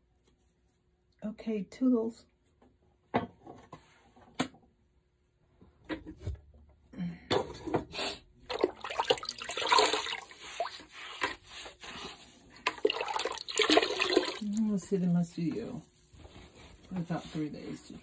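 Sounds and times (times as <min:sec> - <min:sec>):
wet clay sloshing and squelching: 0:08.5 - 0:18.0.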